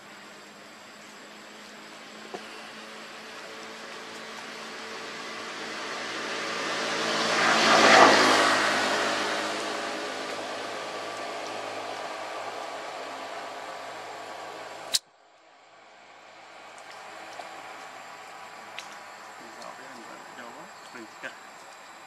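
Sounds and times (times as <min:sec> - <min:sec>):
vehicle passing by: 0:02.6 - 0:14.2.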